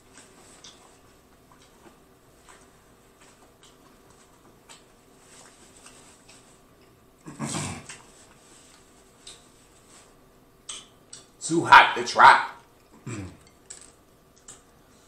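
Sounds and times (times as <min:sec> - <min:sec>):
wet chewing mouth clicks: 0:00.2 - 0:07.0, 0:08.8 - 0:09.5, 0:10.6 - 0:11.4.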